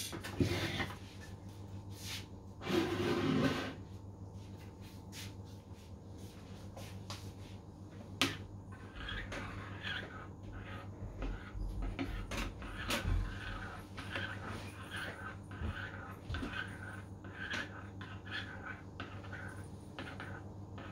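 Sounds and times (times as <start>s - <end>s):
spoon scraping bowl: 2.6s - 3.8s, 8.3s - 20.9s.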